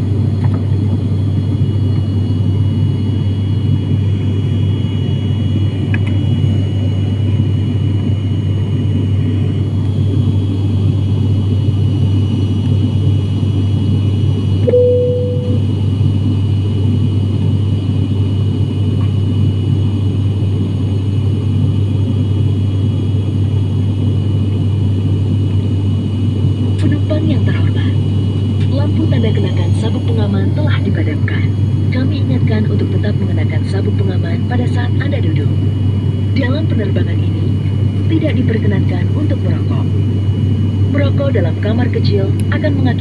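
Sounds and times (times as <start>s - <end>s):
turboprop engines droning in cabin: 0.0s - 43.0s
faint high whine: 14.5s - 15.9s
short tone: 14.6s - 15.7s.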